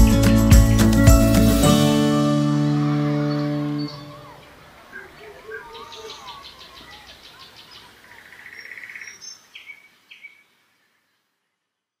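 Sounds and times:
faint outdoor ambience: 0.0 - 12.0
small birds chirping: 3.1 - 11.6.

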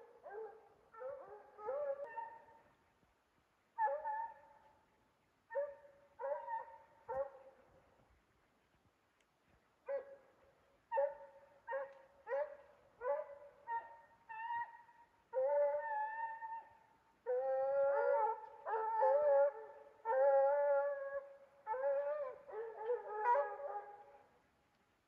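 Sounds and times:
hounds baying: 0.0 - 2.6, 5.5 - 7.4.

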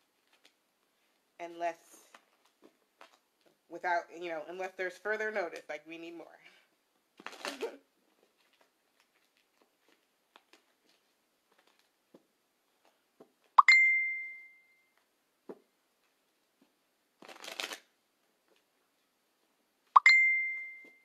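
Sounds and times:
cards riffling: 7.2 - 7.7, 17.2 - 17.9
bright ding: 13.6 - 14.8, 20.0 - 21.0.

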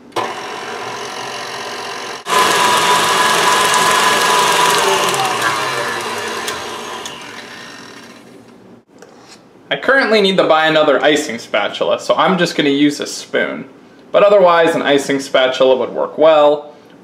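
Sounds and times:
stand mixer motor whining: 0.0 - 8.4.

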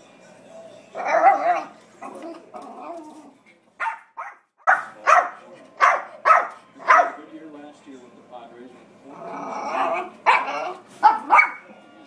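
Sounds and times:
small dog barking: 1.0 - 1.7, 3.8 - 7.2, 9.7 - 11.6.

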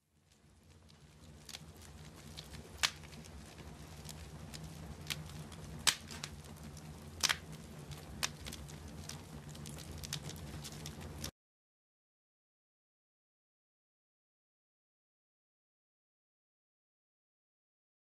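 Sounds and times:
low steady rumble: 0.0 - 11.3
wood fire crackling: 0.0 - 11.3.

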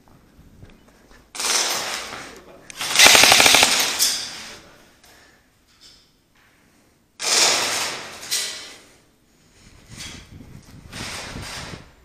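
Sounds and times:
airsoft rifle full-auto burst: 2.8 - 4.1.

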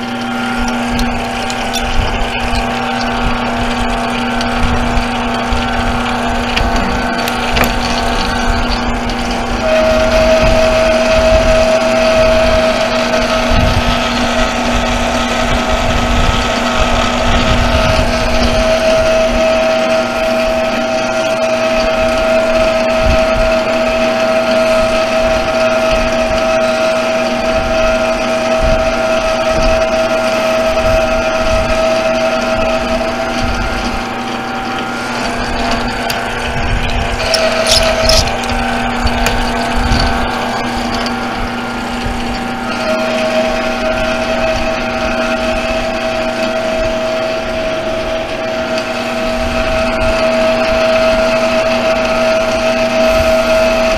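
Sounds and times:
lathe motor and gear whine: 0.0 - 53.9
low rumbling handling bumps: 0.2 - 12.6.

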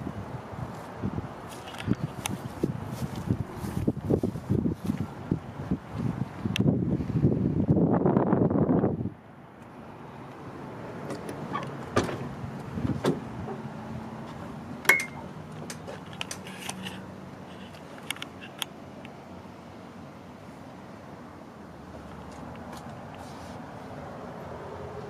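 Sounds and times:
bus door clicks and knocks: 11.0 - 13.7, 14.8 - 16.4.

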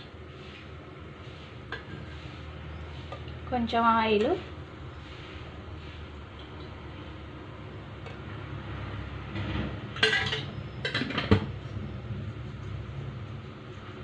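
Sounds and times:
low background hum: 0.0 - 14.0
metal utensils clinking against pots: 10.0 - 11.5.

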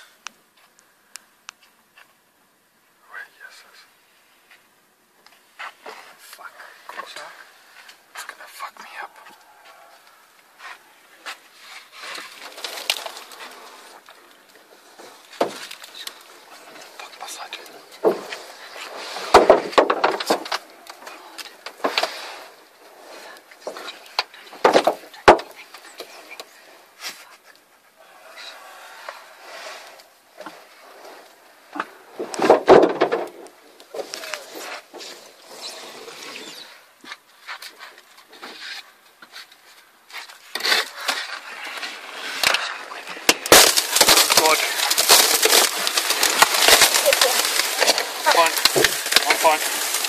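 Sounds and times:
windscreen glass cracking: 11.6 - 26.6, 29.2 - 36.8, 40.2 - 50.0
glass crackling and crunching: 12.0 - 22.1, 40.3 - 50.0.

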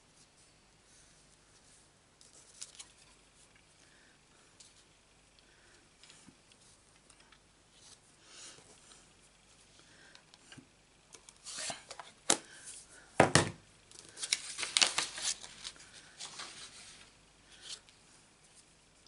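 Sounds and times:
paper sliding and rustling: 14.1 - 17.8.

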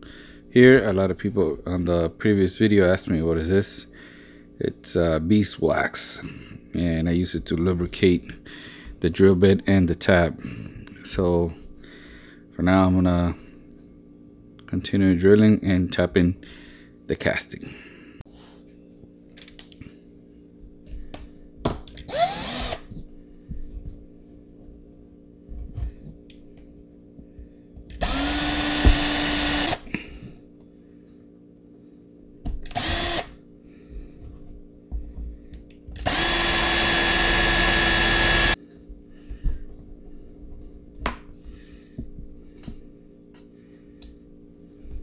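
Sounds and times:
steady low hum: 0.0 - 45.0
cordless drill spinning: 22.0 - 23.0, 27.9 - 29.9, 32.7 - 33.4, 36.0 - 38.6.

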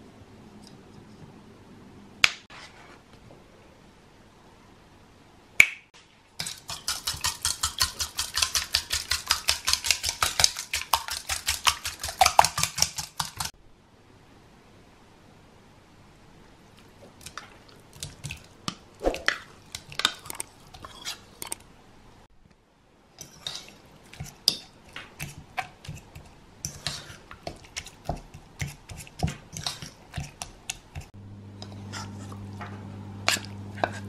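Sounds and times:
steady low hum: 31.2 - 34.0.

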